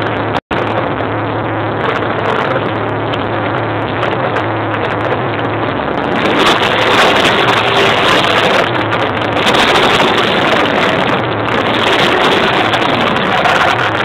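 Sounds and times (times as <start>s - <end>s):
motorcycle engines revving: 0.0s - 14.0s
wind buffeting microphone: 0.0s - 14.0s.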